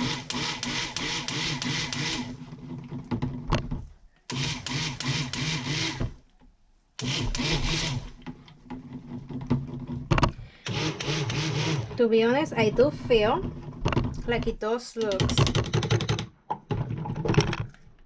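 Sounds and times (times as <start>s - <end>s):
stick blender running: 0.0s - 2.5s, 4.3s - 6.2s, 7.0s - 8.2s, 10.5s - 13.4s.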